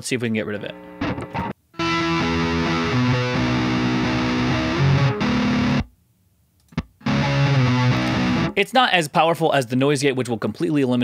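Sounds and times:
distorted electric guitar chords: 0:00.7 - 0:05.9, 0:06.8 - 0:08.6.

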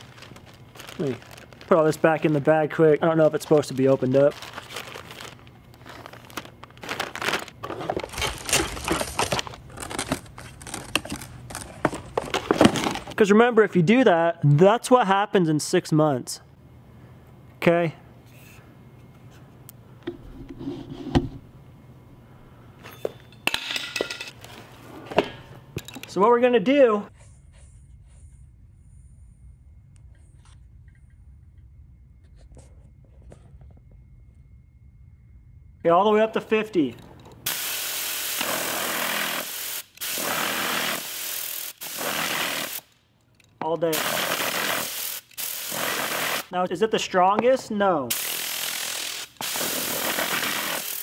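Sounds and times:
compressed air blasts: 0:37.4 - 0:42.9, 0:43.9 - 0:46.5, 0:48.1 - 0:51.0.

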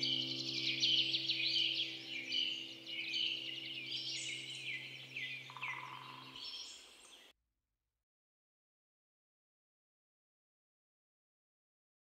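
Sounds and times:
small birds chirping: 0:00.0 - 0:07.3.

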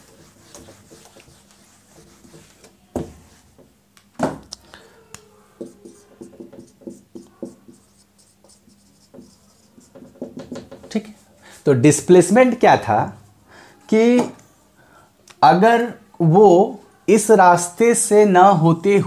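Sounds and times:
marker writing on whiteboard: 0:00.0 - 0:03.7, 0:05.6 - 0:11.2
whiteboard being wiped: 0:00.0 - 0:03.7, 0:05.6 - 0:11.6.

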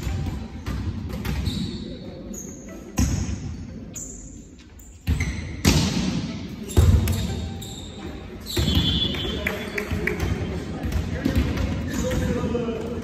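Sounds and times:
volleyball hits echoing in hall: 0:00.0 - 0:01.9, 0:05.0 - 0:07.6, 0:08.2 - 0:13.0.

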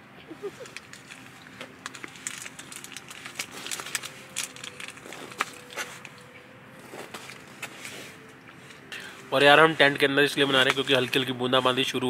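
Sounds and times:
crunchy snack chewing: 0:00.5 - 0:06.2.

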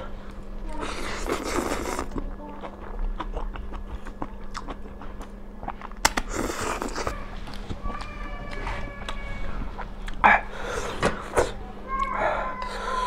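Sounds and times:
chewing: 0:00.3 - 0:09.2, 0:09.8 - 0:10.4
noodle slurp: 0:00.9 - 0:02.2.

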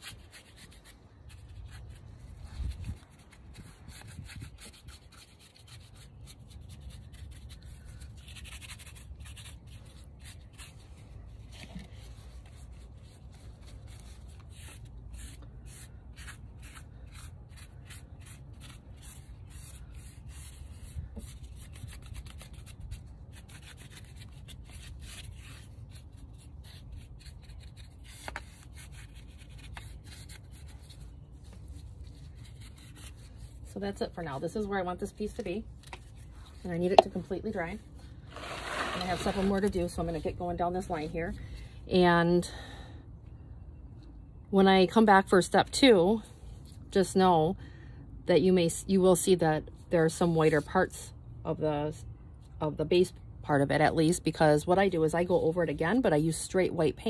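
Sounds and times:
paintbrush scrubbing concrete: 0:00.0 - 0:11.4, 0:36.6 - 0:40.9.

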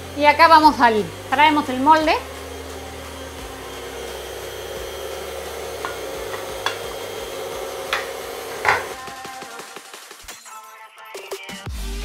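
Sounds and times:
electric mixer running: 0:00.0 - 0:09.6
beaters clicking against bowl: 0:07.8 - 0:09.0.

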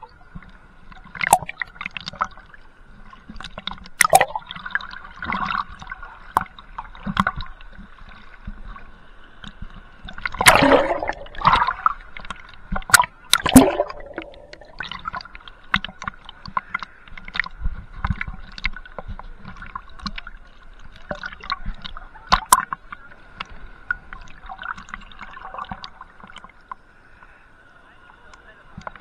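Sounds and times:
water splashing against camera: 0:03.1 - 0:26.8
clicks and pops: 0:10.4 - 0:11.7, 0:12.9 - 0:15.0.

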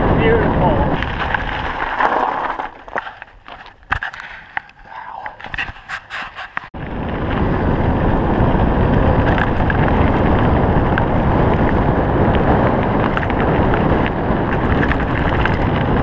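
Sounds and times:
wind buffeting microphone: 0:00.0 - 0:04.1, 0:04.7 - 0:16.0
tyres on gravel: 0:00.0 - 0:06.0.

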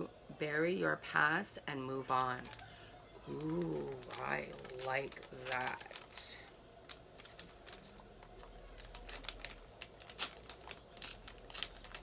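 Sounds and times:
packaging crinkling and rustling: 0:02.0 - 0:12.0.

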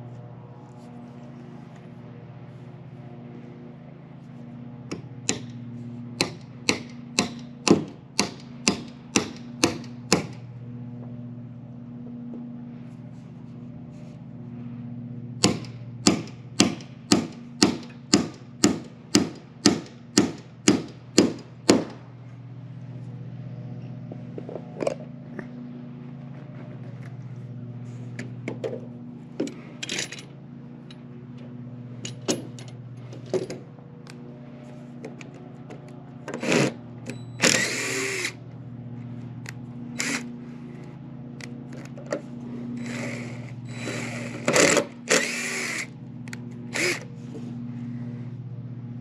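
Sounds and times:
hammer driving nails into wood: 0:06.2 - 0:10.4, 0:15.4 - 0:21.9.

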